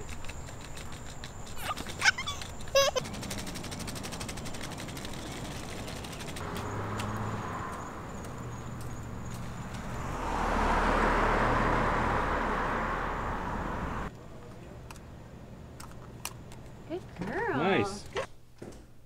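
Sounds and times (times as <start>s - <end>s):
car passing: 3.1s - 14.1s.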